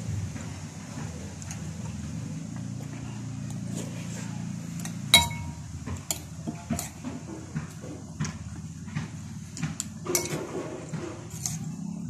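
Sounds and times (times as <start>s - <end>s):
steady low hum: 0.0s - 12.0s
metal spoon clinking on plate: 5.2s - 7.0s, 10.1s - 10.5s.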